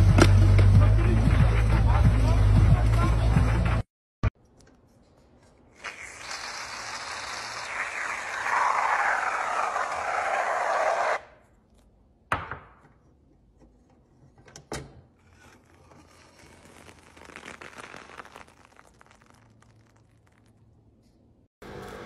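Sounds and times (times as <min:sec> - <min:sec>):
soft crackling squish: 0:15.4 - 0:21.4.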